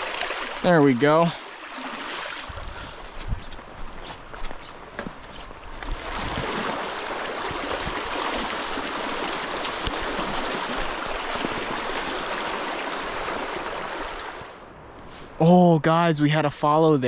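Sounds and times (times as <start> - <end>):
creek water rushing: 0.0 - 14.6.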